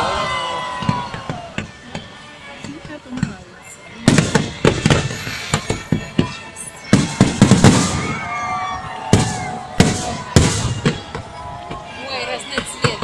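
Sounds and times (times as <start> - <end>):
fireworks crackling: 0.7 - 13.0
fireworks bangs: 4.0 - 13.0.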